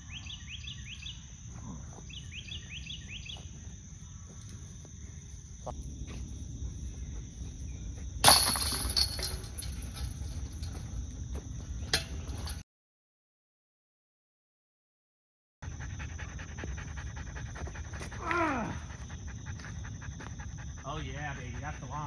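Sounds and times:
insects droning: 0.0s - 12.6s, 15.6s - 22.0s
sharp metal clink: 8.2s - 10.8s
disc striking metal chains: 8.2s - 10.9s.

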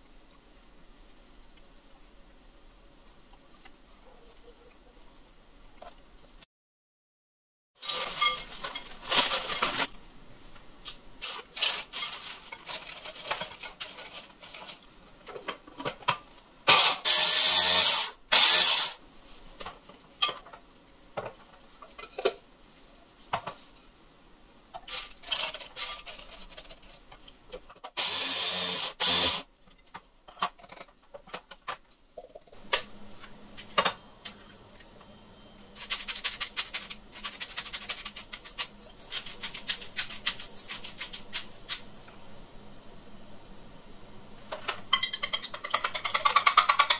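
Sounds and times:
clicks and rustles of utensils: 7.8s - 9.9s, 10.8s - 16.3s, 29.7s - 32.9s.

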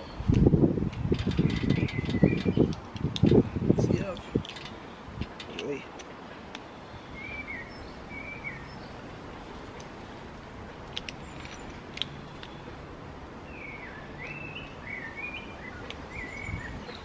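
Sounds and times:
steady background hiss: 0.0s - 17.0s
songbird warbling: 1.2s - 2.8s
light clicks: 10.9s - 12.6s.

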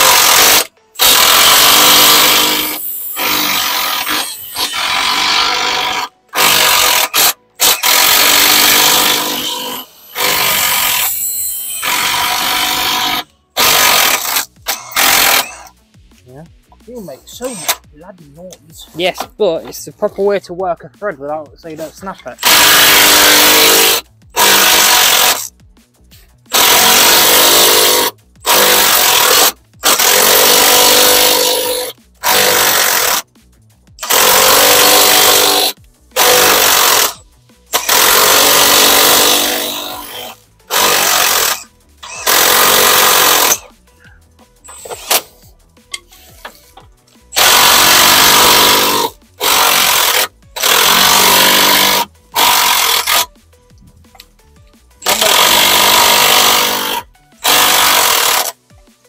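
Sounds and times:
impact wrench hammering: 0.0s - 15.7s, 22.4s - 25.5s, 26.5s - 33.3s, 34.0s - 43.7s, 45.9s - 53.3s, 55.0s - 58.6s.

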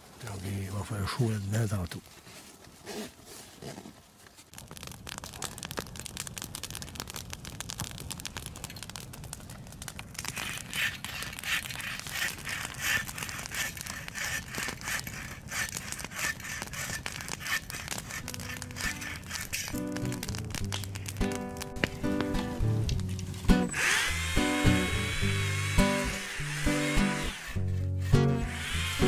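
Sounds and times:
campfire crackling and popping: 3.7s - 29.0s
hand saw cutting branch: 10.3s - 19.8s, 23.7s - 29.0s.

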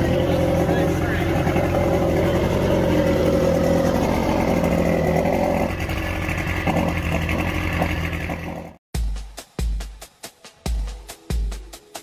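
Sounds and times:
outboard engine idling: 0.0s - 8.8s.

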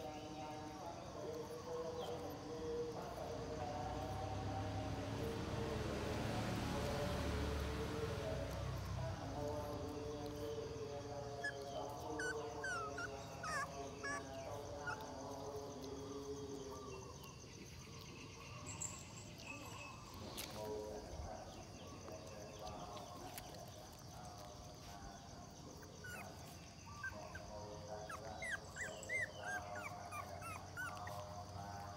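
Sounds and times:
puppies whimpering: 8.1s - 17.1s, 25.5s - 31.9s.

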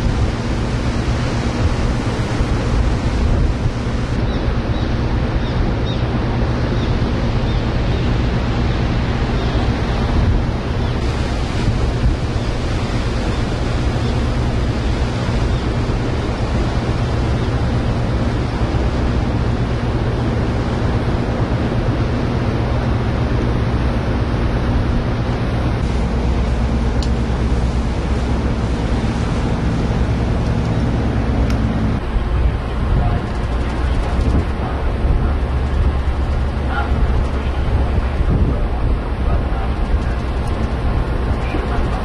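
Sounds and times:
wind rushing: 0.0s - 4.3s
ferry engines humming: 0.0s - 42.0s
water churning along hull: 0.0s - 42.0s.

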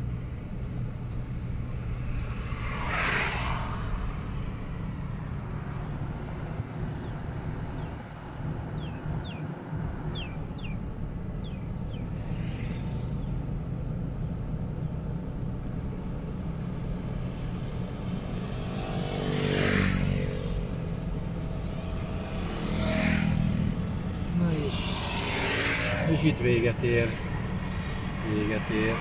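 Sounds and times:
car engine and tyre rumble: 0.0s - 29.0s
vehicle passing: 1.9s - 13.6s, 18.2s - 29.0s.

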